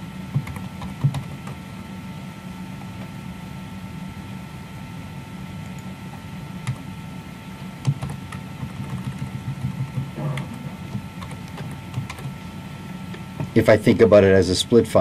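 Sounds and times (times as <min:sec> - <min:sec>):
steady background hum: 0:00.0 - 0:15.0
keyboard keystrokes: 0:07.8 - 0:12.4.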